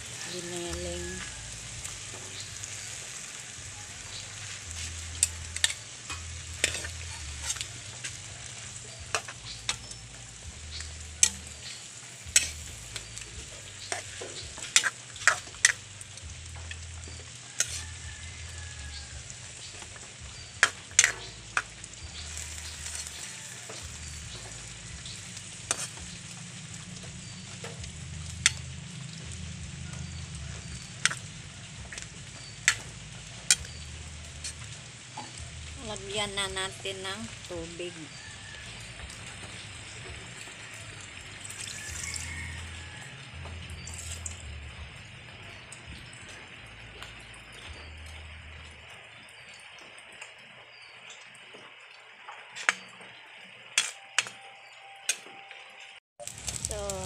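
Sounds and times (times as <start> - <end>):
food sizzling in a wok: 0.0 - 55.2, 56.2 - 57.0
spatula clacking against wok: 20.6 - 21.8.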